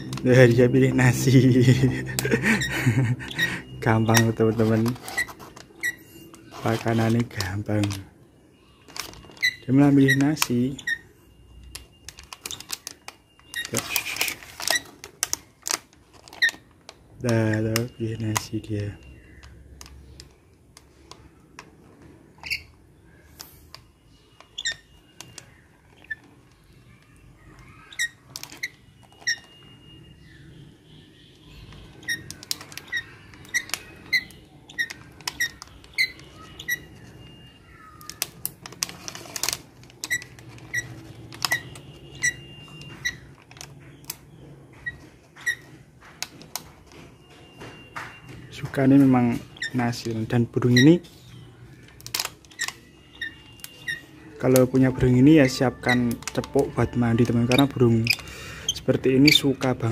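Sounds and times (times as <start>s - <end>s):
high bird squeaks: 2.0s - 7.3s, 8.5s - 11.3s, 22.4s - 22.8s, 23.9s - 44.0s, 44.8s - 45.8s, 49.2s - 50.0s, 50.6s - 54.4s, 55.4s - 59.9s
beak clicks and taps: 38.0s - 50.1s.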